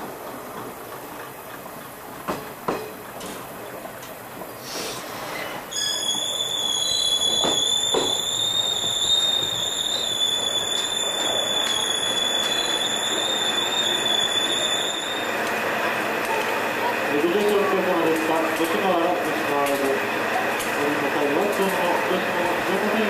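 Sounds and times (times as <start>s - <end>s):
wheels clacking over rail joints: 0.0s - 4.6s, 15.1s - 21.9s
rumble of train wheels: 0.0s - 23.0s
train brakes squealing: 4.6s - 15.6s.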